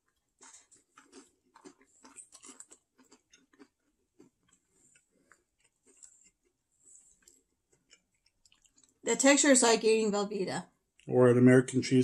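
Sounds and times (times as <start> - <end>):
faint chewing: 0.0 - 9.1.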